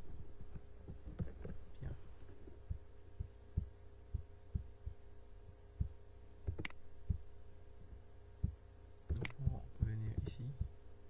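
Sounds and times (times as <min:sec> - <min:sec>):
low electrical hum: 0:00.0 - 0:11.0
dull low thumps: 0:01.8 - 0:05.1, 0:05.7 - 0:07.4, 0:08.4 - 0:08.6, 0:09.2 - 0:10.8
sharp click: 0:06.4 - 0:06.8, 0:09.1 - 0:09.4.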